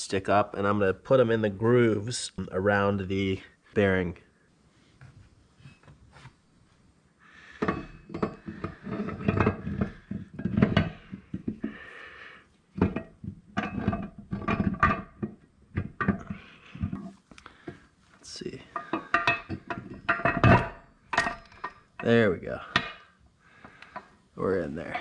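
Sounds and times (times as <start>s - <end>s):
gearbox case set on wooden bench: 7.5s - 25.0s
metal parts clinking and knocking: 7.6s - 11.7s, 12.8s - 17.1s, 18.8s - 22.1s
metal scraping and rubbing: 7.6s - 11.8s.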